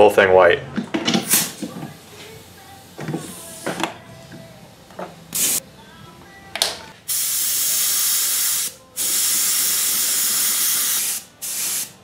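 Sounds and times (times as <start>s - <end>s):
airbrush spraying hiss: 5.3s - 5.6s, 7.1s - 12.0s.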